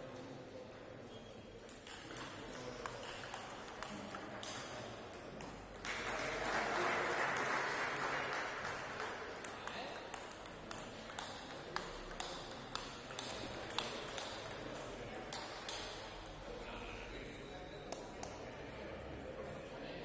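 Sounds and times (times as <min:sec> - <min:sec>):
table tennis ball clicking: 0:09.4 - 0:16.0.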